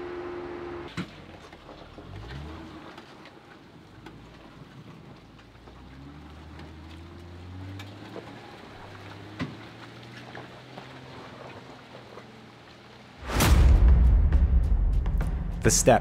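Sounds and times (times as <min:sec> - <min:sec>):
gravel crackling under tyres: 0:00.9 - 0:13.2
engine droning low: 0:13.2 - 0:16.0
sharp knock: 0:13.2 - 0:16.0.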